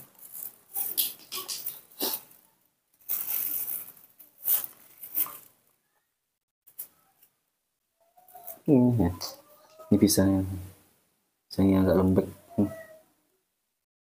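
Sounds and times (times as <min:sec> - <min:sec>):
banana being peeled: 0:00.0 - 0:05.6
plastic bag crinkling: 0:00.0 - 0:05.7.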